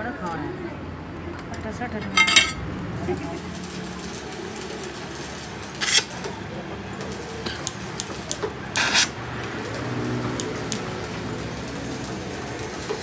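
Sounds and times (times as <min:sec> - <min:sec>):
rushes of torch noise: 0:02.4 - 0:08.0, 0:08.7 - 0:12.9
cutting torch hissing: 0:03.1 - 0:13.0
small clicks: 0:09.7 - 0:11.0.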